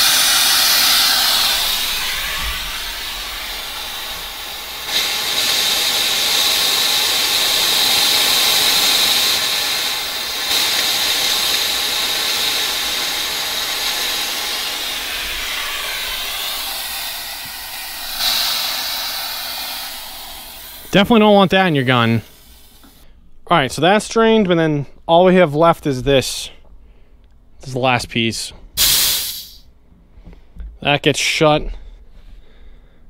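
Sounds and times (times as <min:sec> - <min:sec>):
high-pressure air hissing with whistle: 0:00.0 - 0:23.0, 0:28.8 - 0:29.7.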